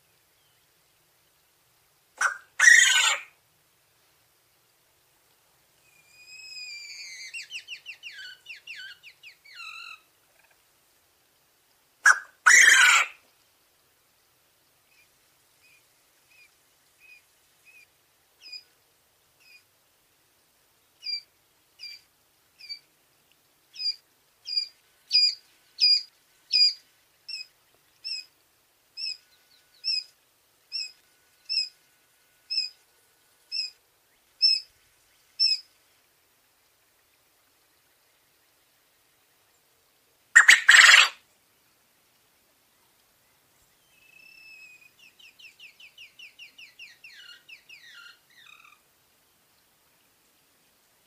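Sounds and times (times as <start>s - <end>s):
quail chick peeping: 2.2s - 3.3s, 12.0s - 13.2s, 23.7s - 28.3s, 29.0s - 30.1s, 40.4s - 41.2s
quail crowing: 2.2s - 3.3s, 12.0s - 13.2s, 40.4s - 41.2s.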